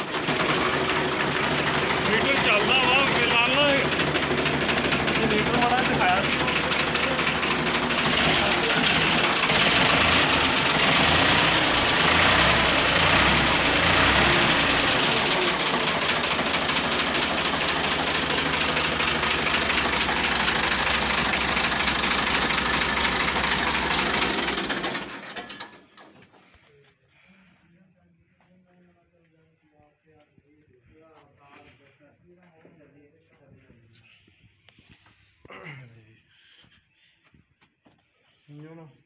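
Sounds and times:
tractor engine idling: 0.0 - 27.6.

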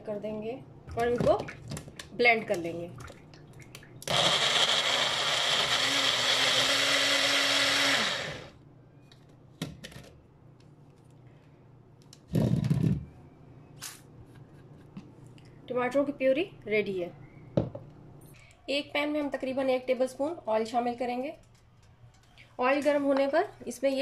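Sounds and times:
blender motor whining: 4.0 - 8.6.

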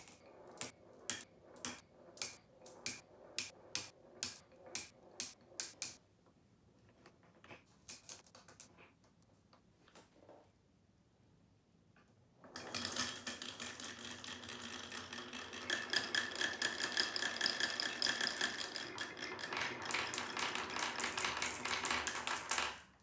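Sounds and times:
marbles rattling down wooden run: 0.0 - 6.0, 12.6 - 22.9.

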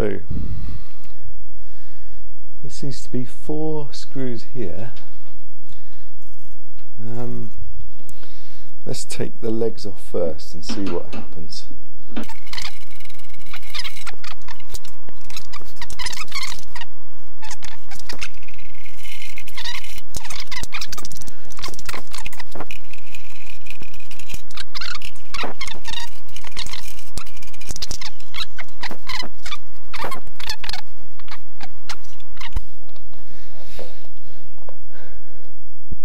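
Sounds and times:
screws squeaking: 12.2 - 32.7.

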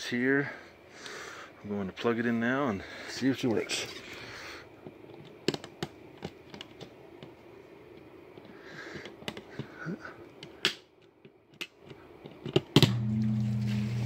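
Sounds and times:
power cord rustling: 4.8 - 9.8.

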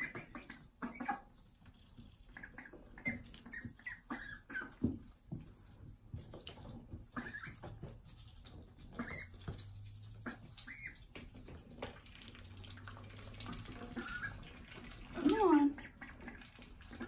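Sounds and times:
ducks scuffling in wood shavings: 0.0 - 17.0
young ducks calling: 8.9 - 11.1, 13.5 - 17.0.

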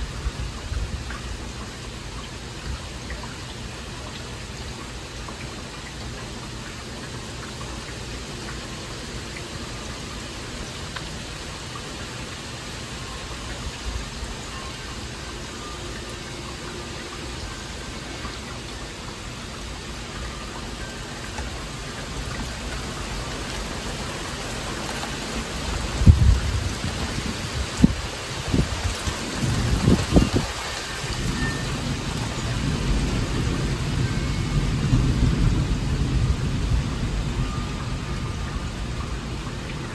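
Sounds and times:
heavy rain falling: 0.0 - 39.9
low rumble of thunder: 25.6 - 39.9.

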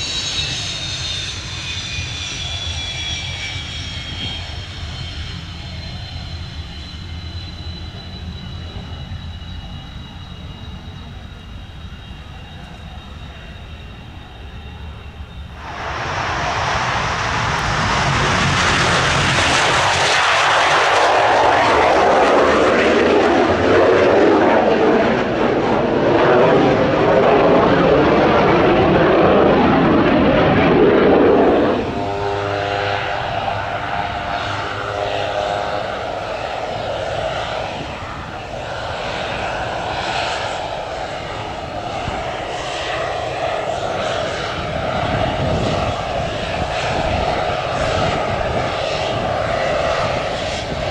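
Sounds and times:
jet engine passing: 0.0 - 50.9
turboprop engine whining: 0.0 - 50.9.

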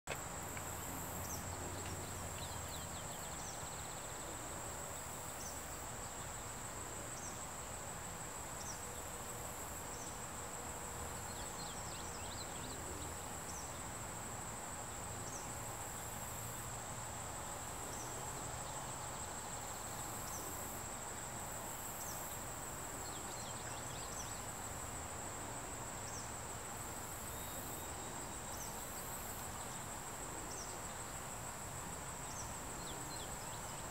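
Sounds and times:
high-pitched insect chorus: 0.1 - 33.9.

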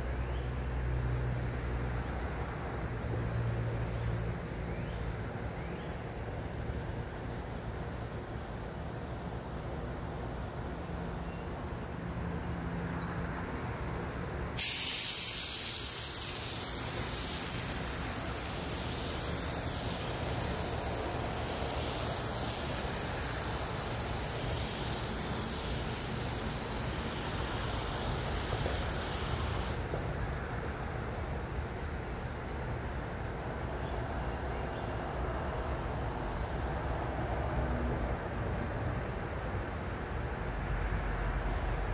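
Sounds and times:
faint outdoor background noise: 0.0 - 41.9
water spraying from nozzle: 14.6 - 29.9.

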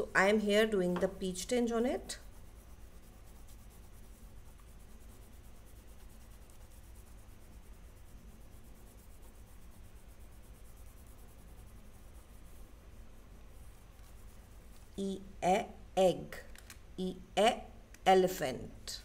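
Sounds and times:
oil pastel rubbing on paper: 0.0 - 15.0
low room hum: 0.0 - 19.0.

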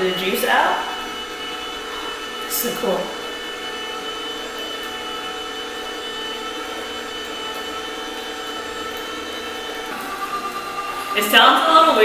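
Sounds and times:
high whining tones: 0.0 - 12.0
juicer motor humming: 0.0 - 12.0.

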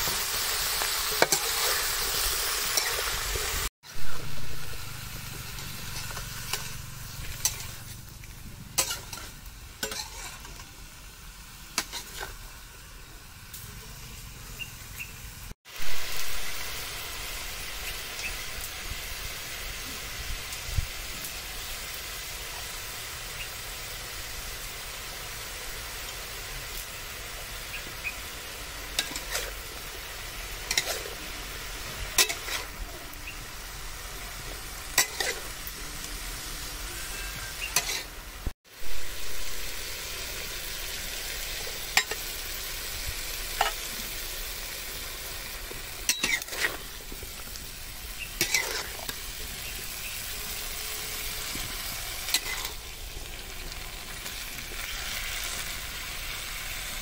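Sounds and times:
vegetables sizzling in a wok: 0.0 - 57.0
metal spatula scraping a pan: 5.5 - 8.0, 8.8 - 10.7, 28.9 - 29.6, 30.6 - 33.1, 34.4 - 38.2, 46.0 - 46.9, 48.3 - 49.3, 51.5 - 52.8.

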